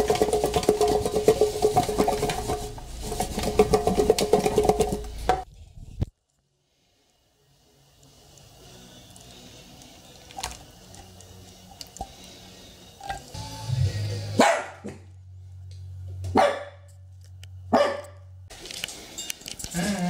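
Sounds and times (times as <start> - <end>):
dog barking: 14.4 - 15.0, 16.3 - 16.9, 17.7 - 18.2.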